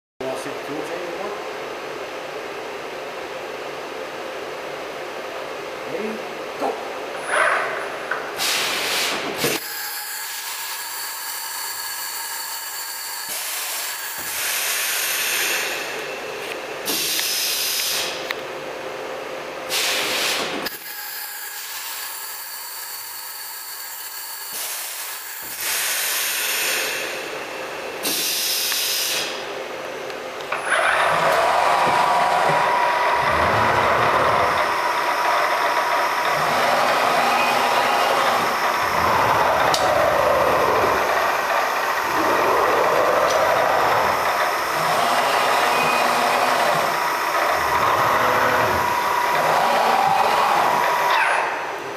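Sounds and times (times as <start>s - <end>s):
machine hiss with whining tones: 8.4s - 18.3s, 19.7s - 29.5s, 30.7s - 51.1s.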